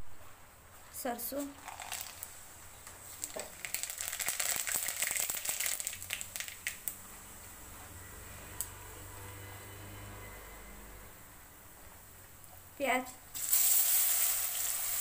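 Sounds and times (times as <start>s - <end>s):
seeds crackling in hot oil: 1.4s - 7.0s, 13.3s - 15.0s.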